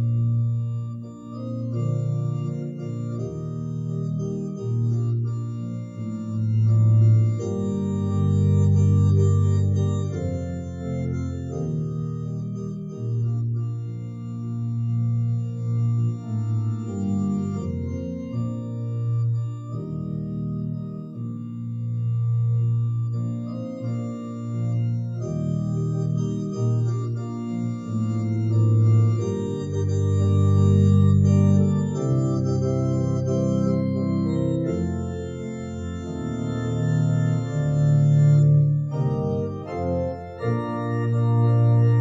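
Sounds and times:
organ playing slow chords: 0.0 - 42.0.

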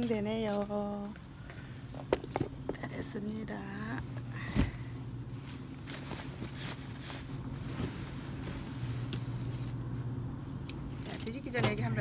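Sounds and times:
steady low hum: 0.0 - 12.0
cloth rustling and swishing: 5.3 - 9.6.

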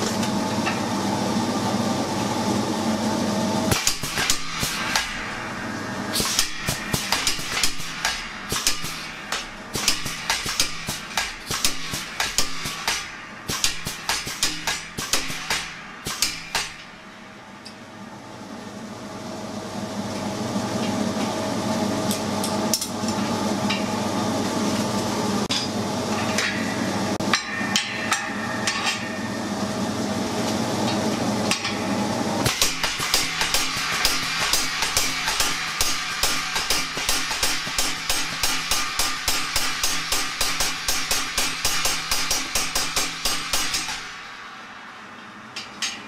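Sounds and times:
power hammer striking hot steel: 3.7 - 17.8, 25.4 - 29.5, 31.4 - 44.8.

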